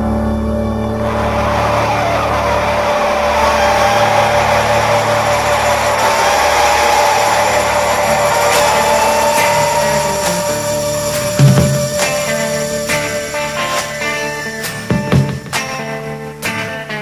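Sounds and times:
rushing mechanical noise with whine: 0:00.9 - 0:14.7.

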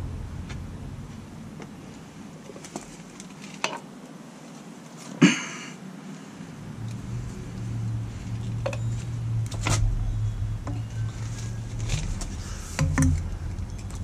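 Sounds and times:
steady low hum: 0:00.0 - 0:14.0
plastic pipe clicks and knocks: 0:12.8 - 0:14.0.

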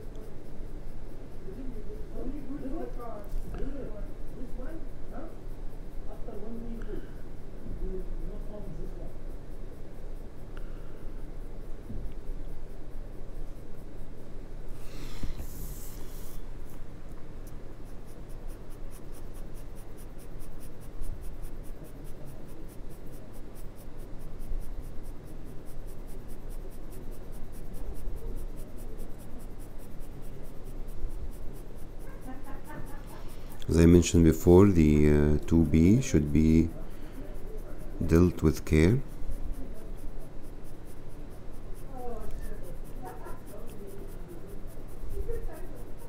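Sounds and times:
pencil scratching on paper: 0:14.8 - 0:16.8, 0:17.8 - 0:46.0.

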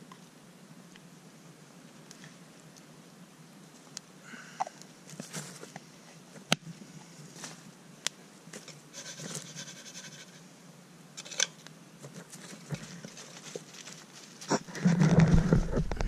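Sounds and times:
dog fur rubbing microphone: 0:14.4 - 0:16.0.

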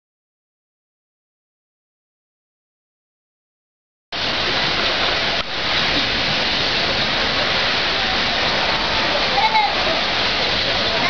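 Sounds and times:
flowing water rushing: 0:04.2 - 0:11.0.

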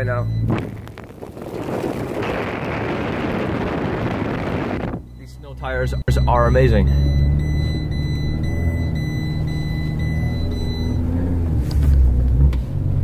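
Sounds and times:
seatbelt warning tone: 0:00.0 - 0:00.7, 0:05.0 - 0:11.6
car engine and tyres rumbling: 0:00.0 - 0:13.0.

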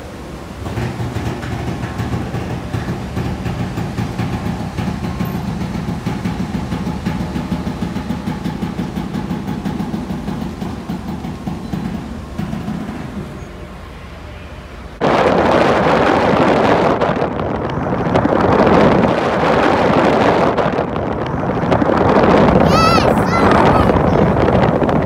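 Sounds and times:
propellers churning water: 0:00.0 - 0:14.1, 0:15.0 - 0:25.0
ferry engines rumbling: 0:00.0 - 0:15.0, 0:20.7 - 0:25.0.

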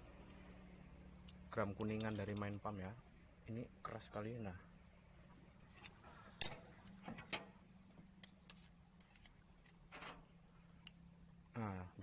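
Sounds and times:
screwdriver clicking on metal: 0:01.3 - 0:02.7.

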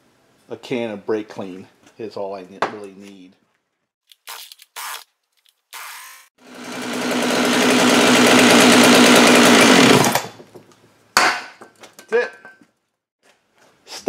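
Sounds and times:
chainsaw engine running: 0:06.4 - 0:10.3.

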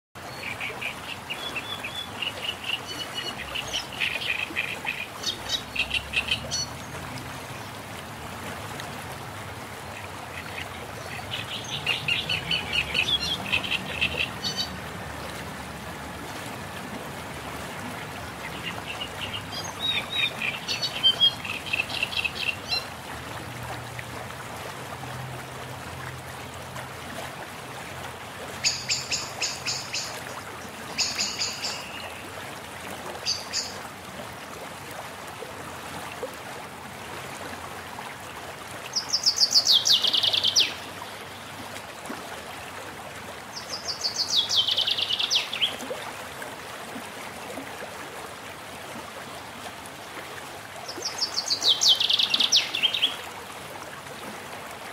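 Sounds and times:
birds chirping: 0:10.4 - 0:14.7.

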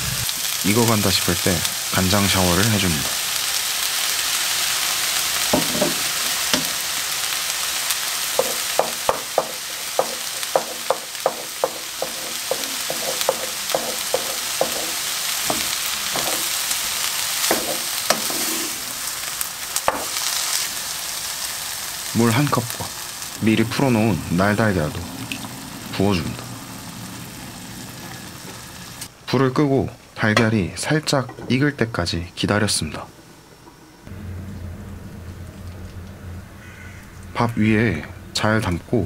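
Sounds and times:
food sizzling in a frying pan: 0:00.0 - 0:29.1
spatula tapping a pan: 0:05.5 - 0:06.8, 0:08.4 - 0:16.6, 0:17.4 - 0:18.5, 0:19.9 - 0:20.1.

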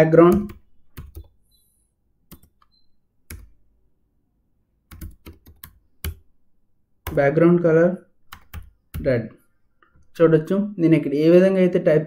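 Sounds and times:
computer keyboard typing: 0:00.2 - 0:01.4, 0:02.2 - 0:03.6, 0:04.8 - 0:06.3, 0:07.0 - 0:07.4, 0:08.2 - 0:09.2.

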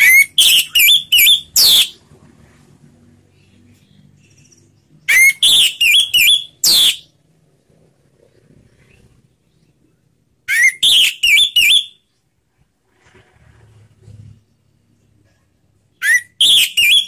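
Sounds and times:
thrush singing whistled notes: 0:00.0 - 0:02.0, 0:04.3 - 0:07.2, 0:10.5 - 0:12.0, 0:16.0 - 0:17.0.

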